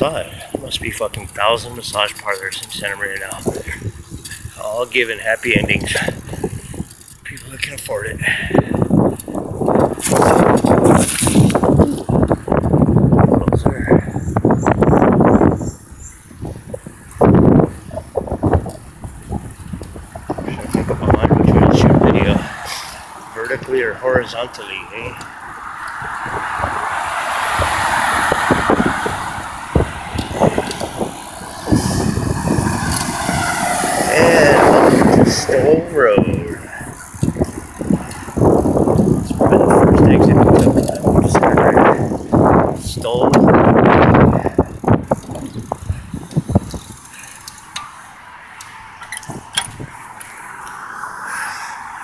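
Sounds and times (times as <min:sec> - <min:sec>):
car passing: 0:00.0 - 0:07.4, 0:13.8 - 0:52.0
scattered ticks: 0:36.8 - 0:42.4, 0:44.6 - 0:48.0.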